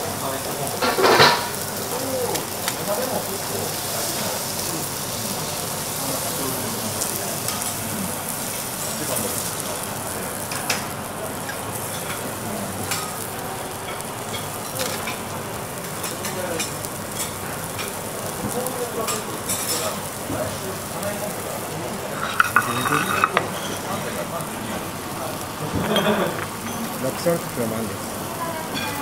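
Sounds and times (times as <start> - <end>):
food sizzling on a steel griddle: 0.0 - 29.0
utensils tapping a hot plate: 22.0 - 23.9.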